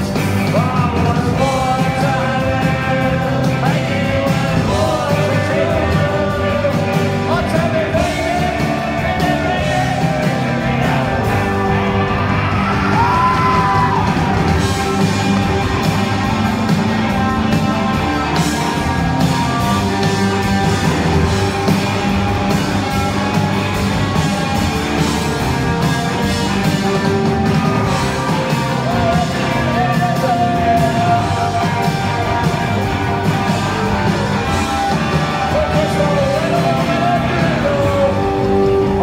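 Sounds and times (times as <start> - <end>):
person singing: 0.0 - 14.2, 28.1 - 39.0
live rock band playing: 0.0 - 39.0.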